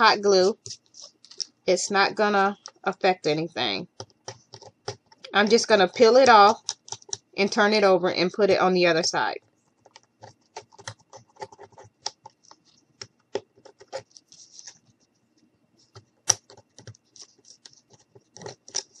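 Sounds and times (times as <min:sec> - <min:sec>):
small clicks taps and scratching: 0:00.4 - 0:01.6, 0:02.6 - 0:02.9, 0:03.9 - 0:07.4, 0:09.4 - 0:19.0.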